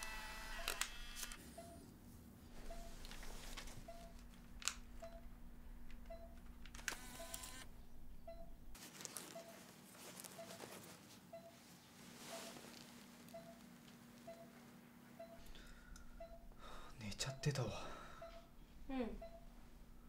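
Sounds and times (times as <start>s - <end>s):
low steady hum: 0.1s - 8.8s, 11.3s - 20.0s
soft electronic beeps: 13.3s - 13.6s, 16.2s - 17.6s, 19.2s - 19.5s.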